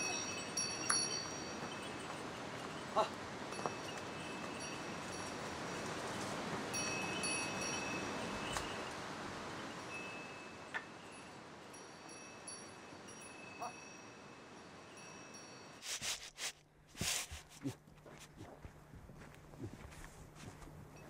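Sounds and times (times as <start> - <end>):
animal bells jingling: 0.0 - 9.0, 9.6 - 15.8.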